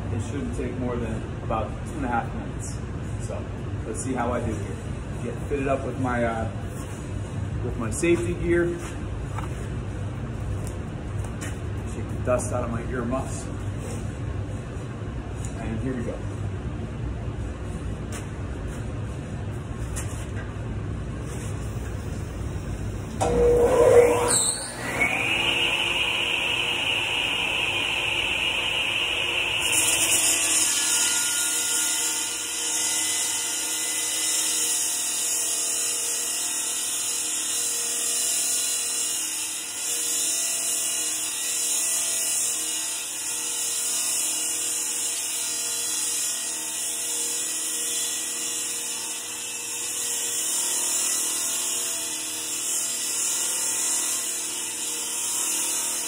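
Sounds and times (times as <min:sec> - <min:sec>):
masonry saw motor whine: 0:22.1 - 0:34.0
high hiss of blade cutting: 0:23.9 - 0:30.9.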